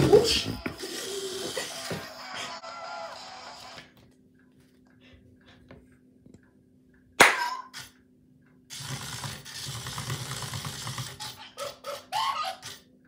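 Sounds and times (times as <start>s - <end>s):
toy robot motors whirring: 8.7s - 12.8s.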